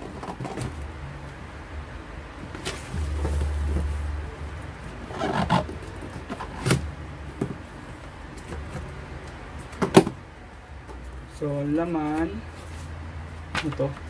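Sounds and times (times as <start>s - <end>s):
box shifted on bench rumble: 2.5s - 4.2s.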